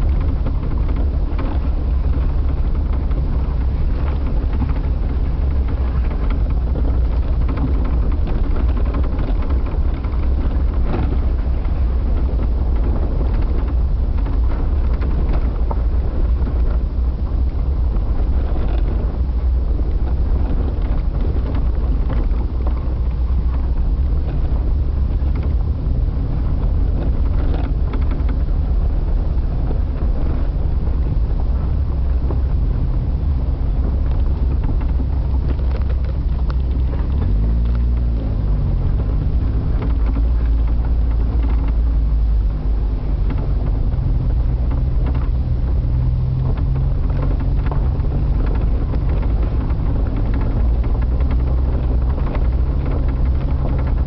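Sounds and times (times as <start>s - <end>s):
engine low rumble: 0.0s - 54.0s
light rattles: 0.0s - 54.0s
wind on microphone: 0.0s - 54.0s.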